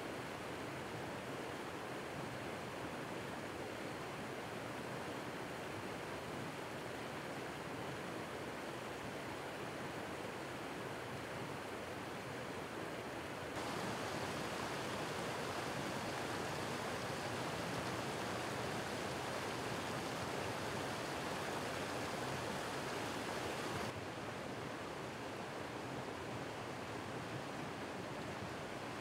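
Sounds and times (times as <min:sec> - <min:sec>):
water rushing and bubbling: 0:13.6 - 0:24.0.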